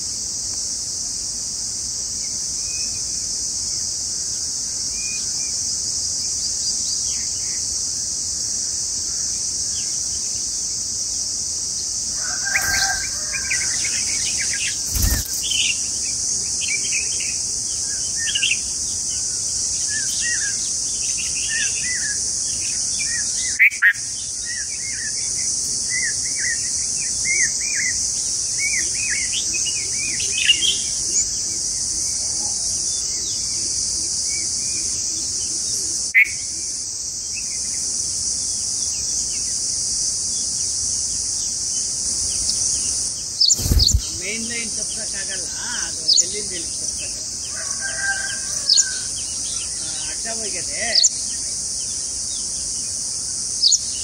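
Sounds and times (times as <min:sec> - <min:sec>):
high insect drone: 0:00.0 - 0:54.0
nestlings begging chirps: 0:11.8 - 0:33.7, 0:41.8 - 0:54.0.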